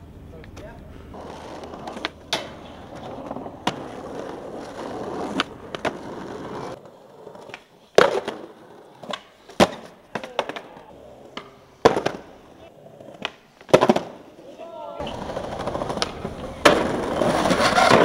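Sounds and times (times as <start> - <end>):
skateboard wheels rolling on concrete: 0.0 - 18.0
skateboard clacks and slaps: 0.4 - 12.4, 13.0 - 14.2, 15.0 - 18.0.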